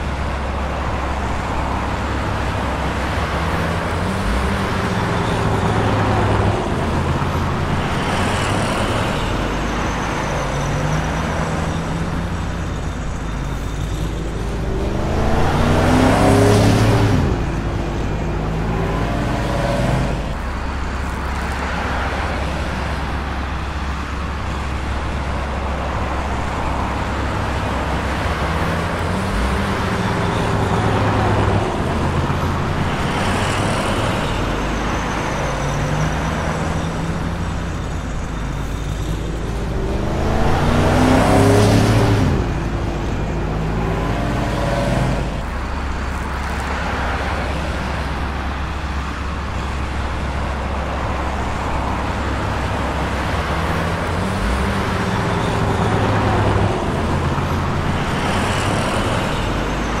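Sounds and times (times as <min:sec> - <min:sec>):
traffic engines idling: 0:00.0 - 1:00.0
vehicle passing close by: 0:14.6 - 0:17.8, 0:39.4 - 0:45.4.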